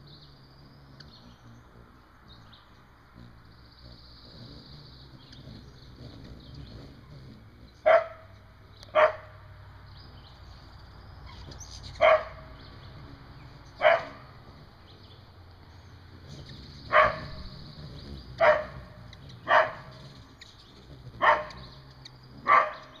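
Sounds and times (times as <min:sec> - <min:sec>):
dog barking: 0:07.8 - 0:08.3, 0:08.9 - 0:09.3, 0:12.0 - 0:12.5, 0:13.8 - 0:14.2, 0:16.9 - 0:17.4, 0:18.4 - 0:20.0, 0:21.2 - 0:21.6, 0:22.4 - 0:23.0.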